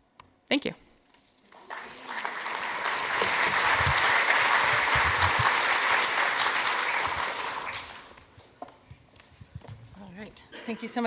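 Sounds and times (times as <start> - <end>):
audience applauding: 1.5 - 8.3.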